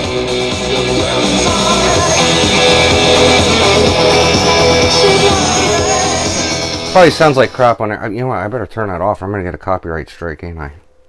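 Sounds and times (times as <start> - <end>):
radio music through speaker: 0.0 - 10.9.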